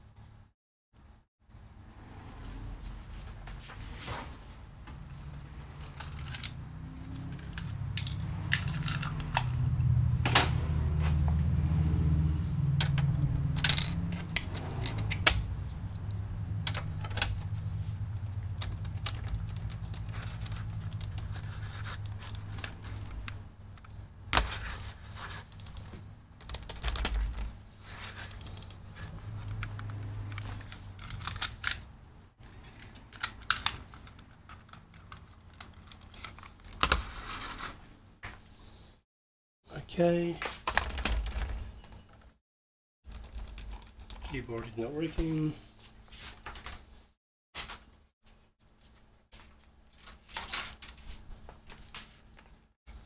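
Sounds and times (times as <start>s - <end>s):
keyboard keys clicking: 18.5s - 21.4s, 25.5s - 27.5s, 43.1s - 44.3s.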